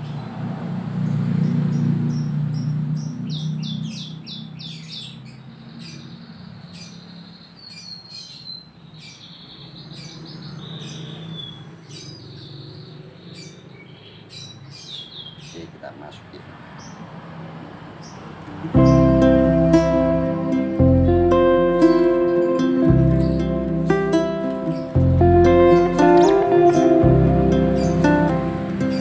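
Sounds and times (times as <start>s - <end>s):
canary twittering: 1.4s - 15.8s, 21.9s - 26.8s
low steady hum: 18.8s - 28.9s.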